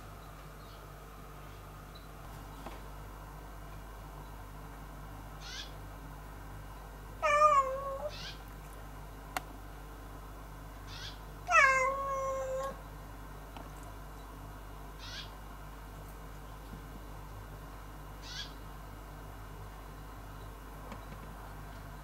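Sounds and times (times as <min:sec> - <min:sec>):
cat meowing: 0:07.2 - 0:08.4, 0:10.9 - 0:12.8.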